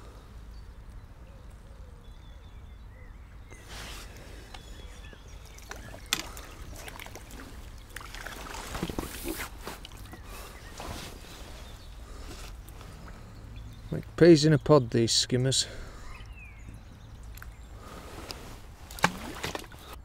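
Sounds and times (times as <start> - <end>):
fish splashing at surface: 5.4 - 10.1, 18.9 - 19.9.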